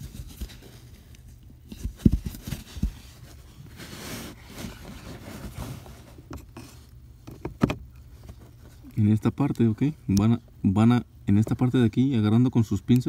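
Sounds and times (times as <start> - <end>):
rustling scrape: 0.0 - 6.9.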